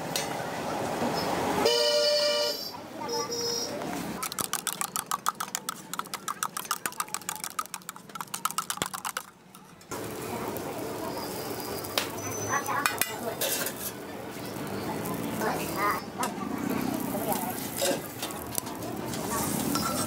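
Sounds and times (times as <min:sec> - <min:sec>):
spoon beating eggs in steel cup: 0:04.2 - 0:09.8
omelette sizzling on griddle: 0:09.9 - 0:20.0.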